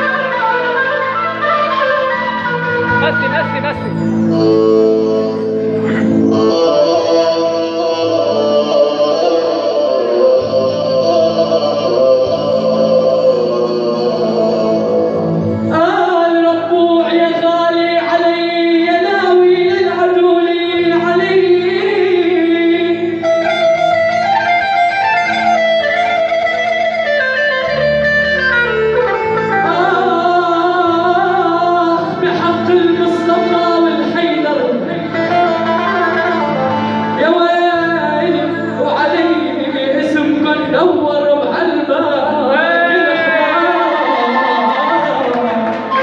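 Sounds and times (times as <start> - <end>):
electronic keyboard playing: 0.0 - 9.6, 20.9 - 39.9
man singing into a microphone: 4.0 - 27.8, 28.4 - 46.0.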